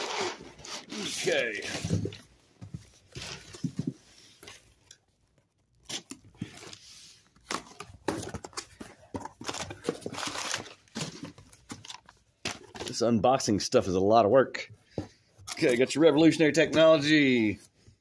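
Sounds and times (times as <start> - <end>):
packing tape scraping and ripping: 0.0 - 1.7, 4.4 - 8.7, 9.4 - 12.7
paper rustling: 2.9 - 13.0.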